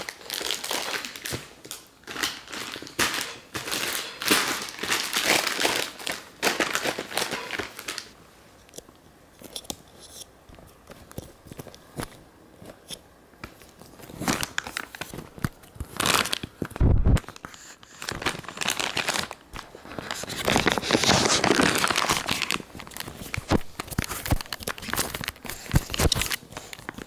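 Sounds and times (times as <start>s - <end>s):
plastic packaging crumpling: 0.0s - 8.2s, 13.7s - 27.0s.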